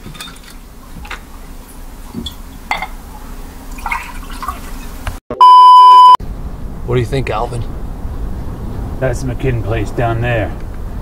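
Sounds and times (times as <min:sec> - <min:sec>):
glass clinking: 0:02.2 - 0:03.0.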